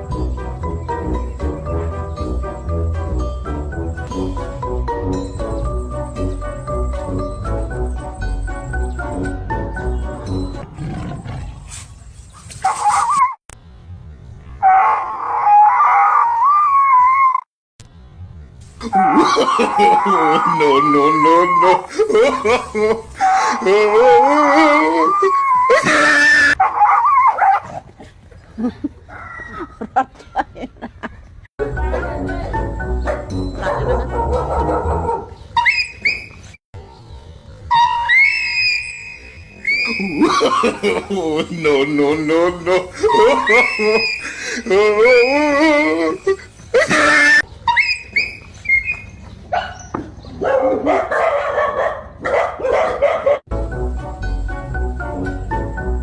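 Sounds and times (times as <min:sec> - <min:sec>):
clicks and scuffs: 0:11.6 - 0:13.3
dog barking and yelping: 0:12.6 - 0:13.4, 0:14.6 - 0:17.4, 0:19.0 - 0:27.9, 0:33.0 - 0:38.9, 0:42.9 - 0:44.4, 0:46.3 - 0:53.5
dog whining and yelping: 0:33.6 - 0:36.6, 0:37.7 - 0:40.3, 0:47.3 - 0:51.3.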